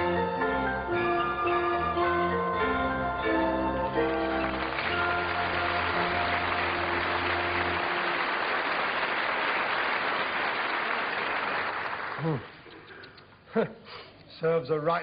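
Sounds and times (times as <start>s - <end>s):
theme music held notes: 0.0s - 8.8s
audience applauding: 3.8s - 12.7s.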